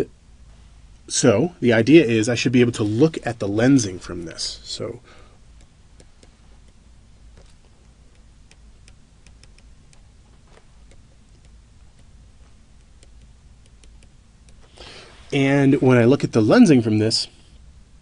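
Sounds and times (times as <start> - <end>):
low room hum: 0.0 - 18.0.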